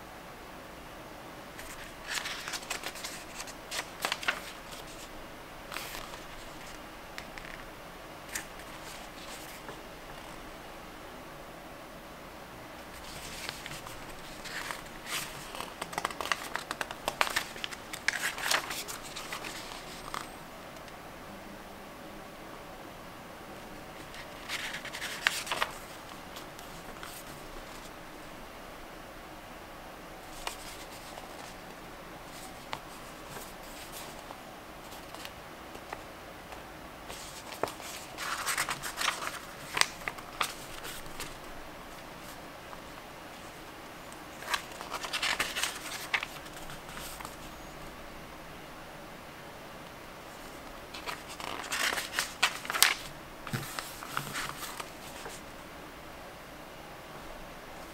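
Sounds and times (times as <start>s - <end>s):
paper rustling and crinkling: 1.6s - 5.1s, 5.7s - 7.6s, 8.3s - 10.4s, 12.9s - 20.4s, 23.9s - 28.0s, 30.2s - 31.7s, 32.3s - 36.0s, 37.1s - 43.6s, 44.3s - 47.5s, 50.3s - 55.4s.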